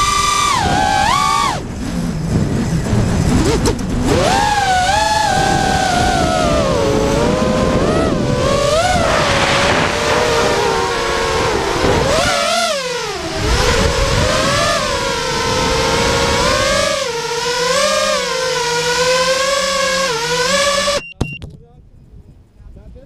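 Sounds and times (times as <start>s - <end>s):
wind rush on microphone: 0.0s - 17.1s
drone motors whining: 0.0s - 21.1s.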